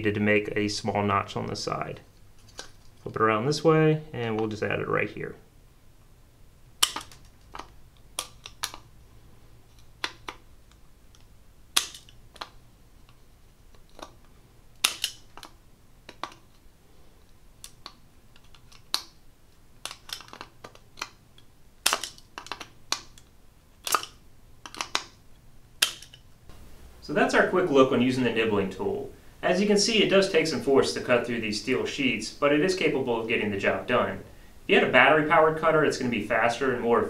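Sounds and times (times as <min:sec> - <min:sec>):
nibbler punching plastic clicks: 0:06.8 - 0:08.9, 0:09.8 - 0:12.6, 0:14.8 - 0:16.5, 0:21.8 - 0:25.2.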